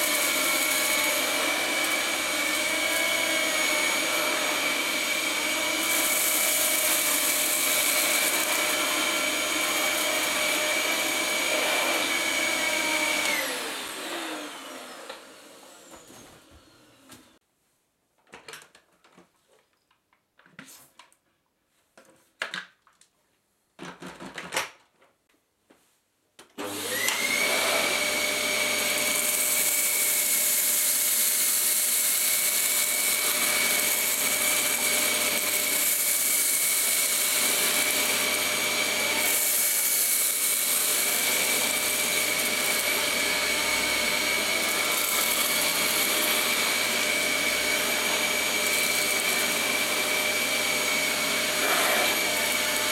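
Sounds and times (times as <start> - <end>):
vacuum cleaner motor whine: 0.0 - 17.4, 26.6 - 52.9
plastic knocks and clicks: 23.8 - 25.1.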